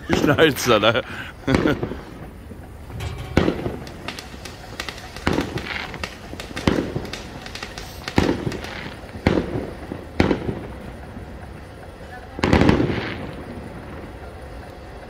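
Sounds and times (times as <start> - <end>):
firework bangs echoing: 2.8 - 10.7
firework fountain hissing: 4.1 - 15.0.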